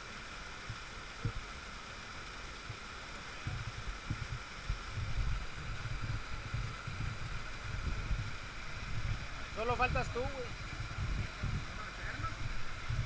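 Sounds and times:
water rushing into rocky pool: 0.0 - 13.0
low rumbling: 3.5 - 13.0.

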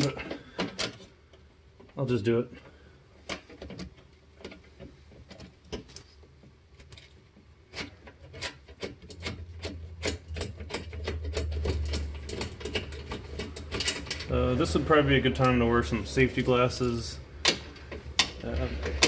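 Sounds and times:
hand ratchet clicking: 7.8 - 14.3.

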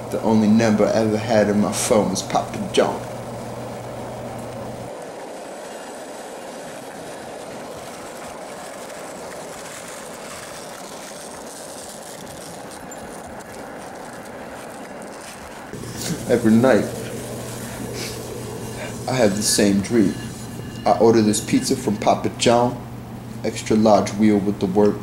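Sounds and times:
low hum: 0.0 - 9.3, 15.7 - 24.2
skateboard wheels rolling on asphalt: 2.8 - 18.9.

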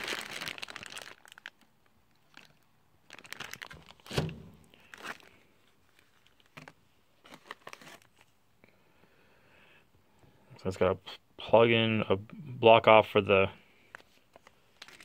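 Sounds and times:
plastic bags crinkling: 0.0 - 8.3, 13.9 - 15.0.

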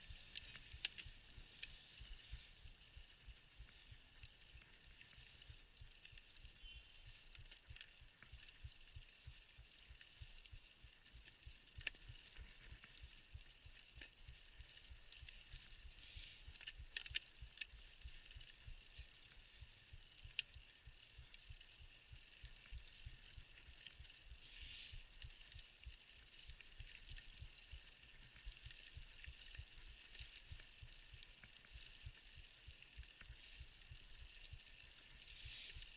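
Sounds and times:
bike clicks and rattles: 10.8 - 25.4.

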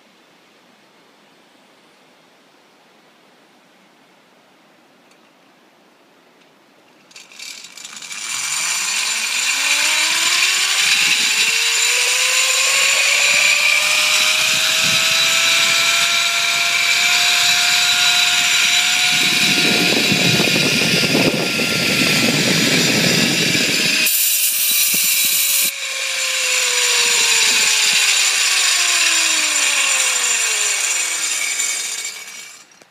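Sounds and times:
pulley wheels whining on cable: 7.1 - 32.9.

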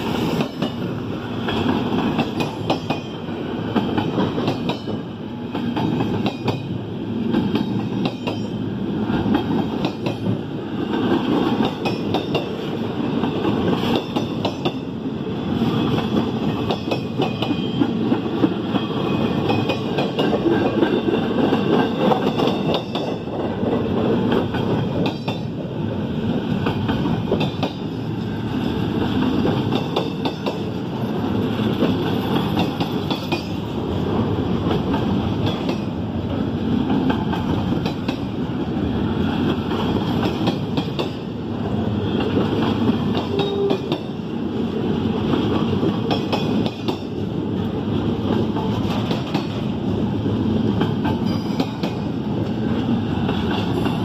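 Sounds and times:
train wheels rumbling on rail: 0.0 - 54.0.

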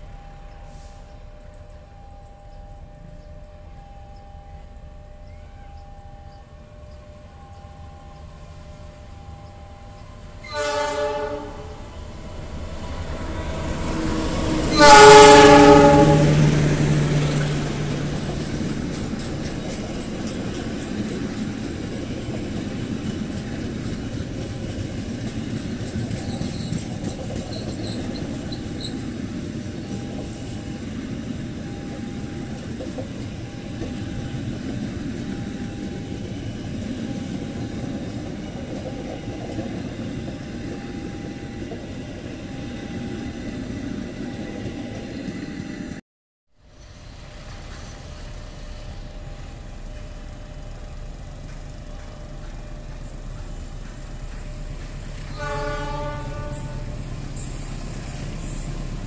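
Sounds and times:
train carriages rumbling past: 0.0 - 46.0, 46.6 - 59.0
locomotive air horn blasts: 10.4 - 11.9, 14.1 - 16.7, 55.3 - 57.1
wheels clicking over rail joints: 17.2 - 41.9, 47.4 - 59.0.

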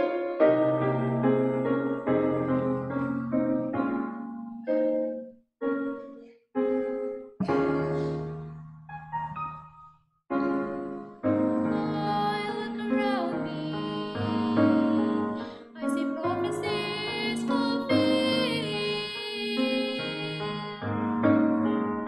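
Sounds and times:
piano accompaniment: 0.0 - 22.0
mixed choir singing: 11.4 - 21.1.

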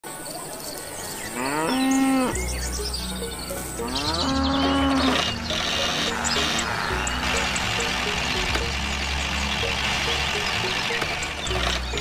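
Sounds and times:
cow mooing: 1.4 - 2.4, 3.8 - 7.9.

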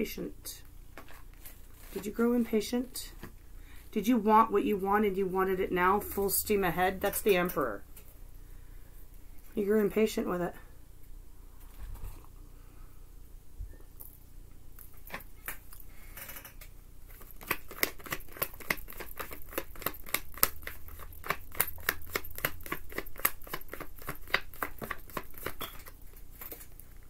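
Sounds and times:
cards shuffled by hand: 17.1 - 26.9.

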